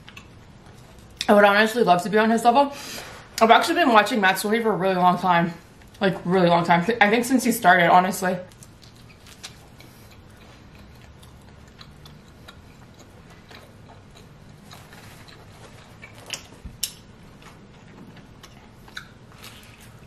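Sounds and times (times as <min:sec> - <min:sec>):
person chewing with wet mouth clicks: 0:08.6 - 0:17.0, 0:18.2 - 0:19.2.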